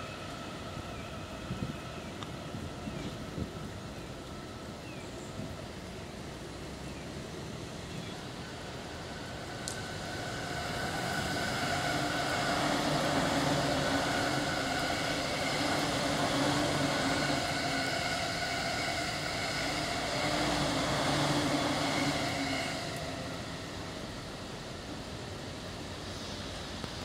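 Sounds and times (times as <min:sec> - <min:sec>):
train wheels rumbling on rails: 0:00.0 - 0:27.0
train motor hum: 0:07.2 - 0:27.0.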